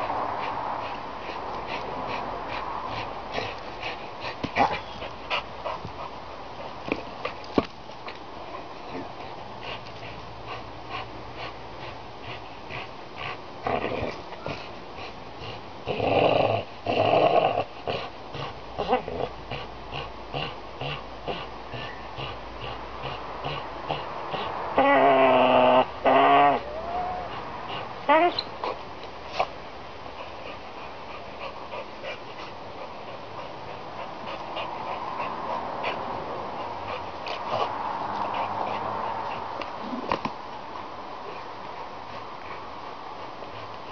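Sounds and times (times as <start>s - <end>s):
dog growling: 12.3s - 14.7s, 15.4s - 28.4s.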